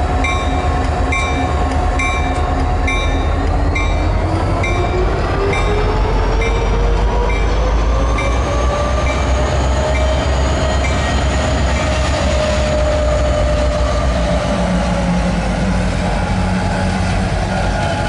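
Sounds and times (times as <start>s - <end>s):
diesel locomotives rumbling past: 0.0s - 18.0s.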